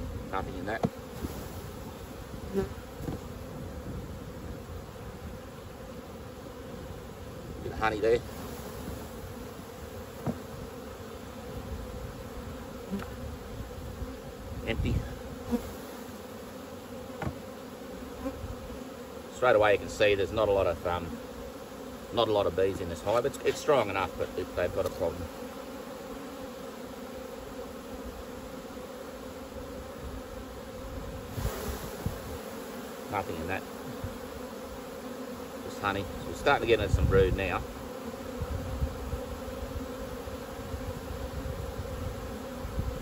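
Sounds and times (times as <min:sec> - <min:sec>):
honeybees buzzing: 0:00.0 - 0:43.0
hive tool knocks and scrapes: 0:00.7 - 0:01.5, 0:03.0 - 0:03.3, 0:10.2 - 0:10.6, 0:17.1 - 0:17.6, 0:23.0 - 0:23.9, 0:24.7 - 0:25.1
wooden frame knocking and scraping: 0:17.2 - 0:17.4.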